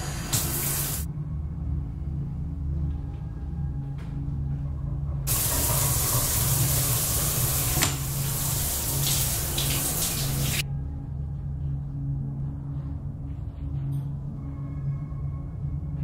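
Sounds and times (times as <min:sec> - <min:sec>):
shower water spraying: 0:00.0 - 0:01.1, 0:05.3 - 0:10.6
low droning music: 0:00.0 - 0:16.0.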